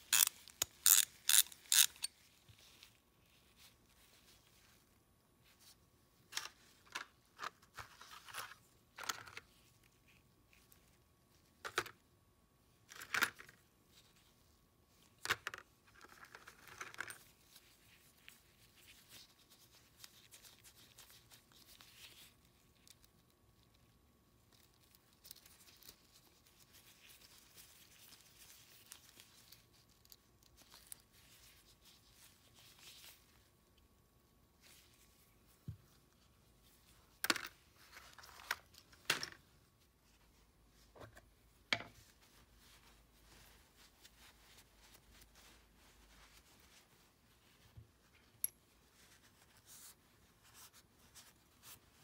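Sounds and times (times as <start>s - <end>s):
rubber gloves rustling: 0.0s - 12.1s, 13.6s - 52.0s
metal parts clicking together: 0.1s - 2.1s.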